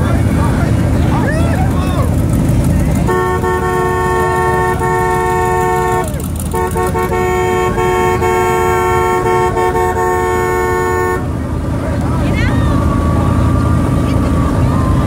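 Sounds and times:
low rumble of engines: 0.0 - 15.0
vehicle horn blasts: 3.0 - 11.4.

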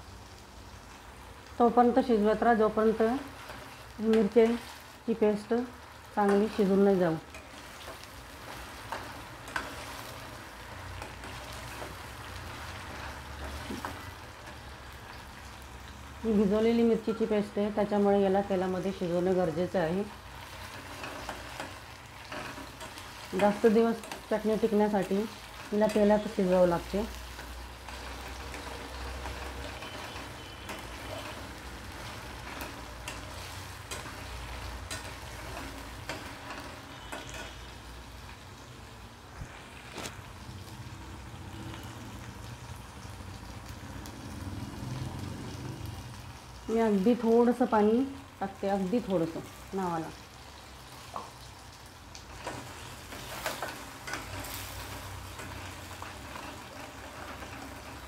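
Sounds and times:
paste sizzling in hot oil: 0.0 - 58.0
spatula scraping a pan: 20.3 - 37.9, 52.3 - 58.0.

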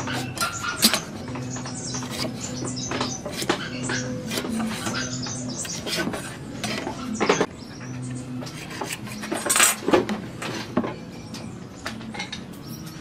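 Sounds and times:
metal tools clinking on wood: 8.7 - 13.0.

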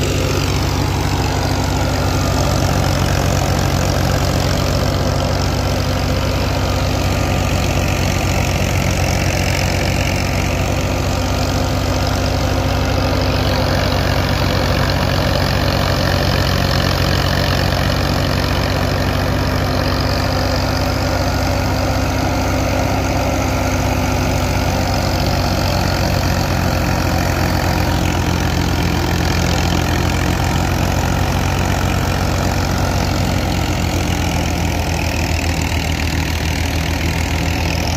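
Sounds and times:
tractor diesel engine running: 0.0 - 37.9.

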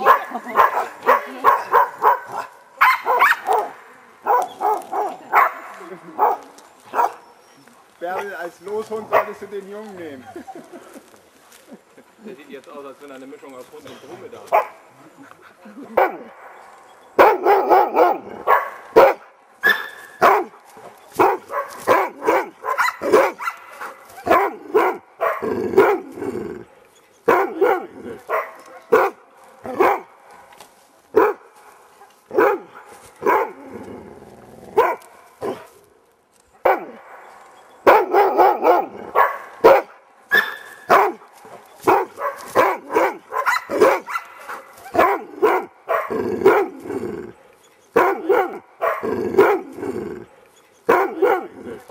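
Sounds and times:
dog barking: 0.0 - 7.2, 9.1 - 9.4, 14.5 - 14.8, 16.0 - 16.5, 17.2 - 20.6, 21.2 - 26.1, 26.7 - 30.1, 31.2 - 31.5, 32.3 - 33.6, 34.8 - 35.7, 36.6 - 46.8, 47.4 - 51.9.

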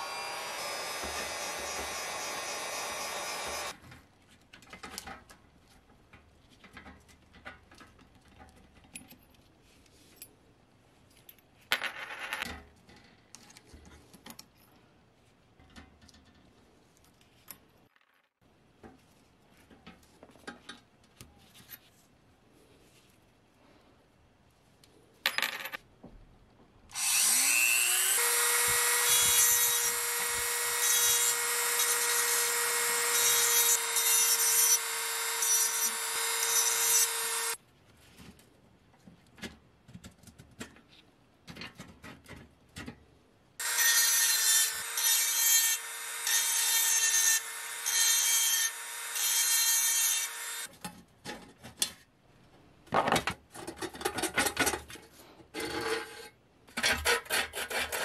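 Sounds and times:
rotary tool whining: 0.0 - 3.7, 26.9 - 37.6.

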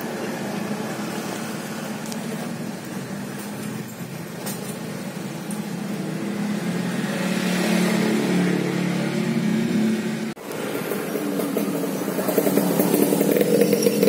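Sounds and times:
vehicle engine running: 8.7 - 14.0.

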